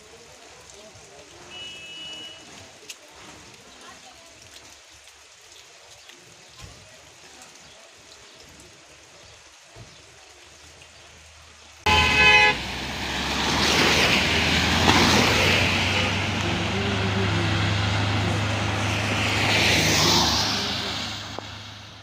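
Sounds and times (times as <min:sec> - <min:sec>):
tyres hissing on wet road: 0:00.0 - 0:22.0
vehicle horn toot: 0:01.5 - 0:02.5, 0:11.9 - 0:12.7
low engine hum: 0:11.9 - 0:22.0.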